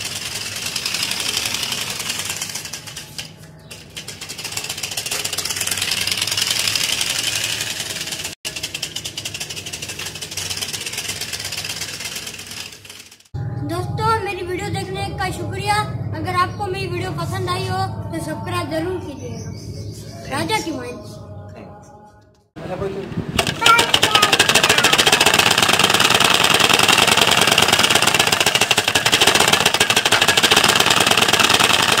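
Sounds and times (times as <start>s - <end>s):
bicycle spokes clattering: 0.0s - 13.4s, 23.4s - 32.0s.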